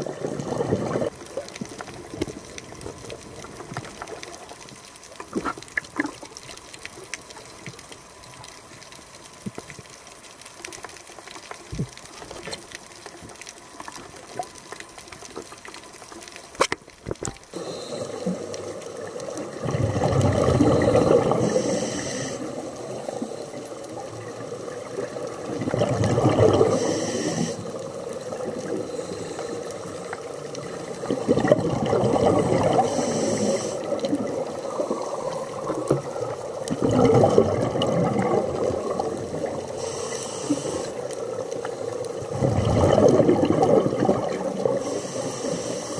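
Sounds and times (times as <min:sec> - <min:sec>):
regulator exhale bubbling: 0:00.0 - 0:01.1, 0:17.5 - 0:24.1, 0:24.7 - 0:45.9
faint water noise: 0:00.0 - 0:45.9
clicks underwater: 0:16.6 - 0:17.4
inhale hiss: 0:17.5 - 0:19.5, 0:20.4 - 0:25.5, 0:26.5 - 0:31.1, 0:32.5 - 0:36.6, 0:39.2 - 0:42.3, 0:44.6 - 0:45.9.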